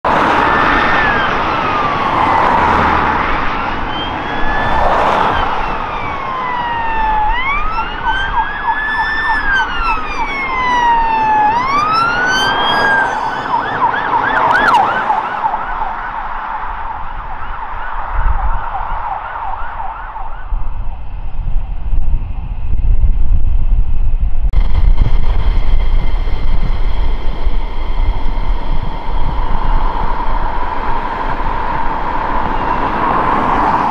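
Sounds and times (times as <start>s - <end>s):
police sirens wailing: 0.0s - 21.2s, 24.9s - 33.9s
police siren yelp: 0.1s - 21.1s.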